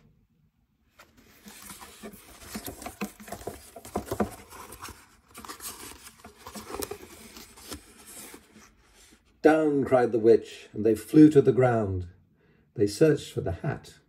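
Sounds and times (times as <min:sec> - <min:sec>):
book pages turning: 0:00.9 - 0:09.2.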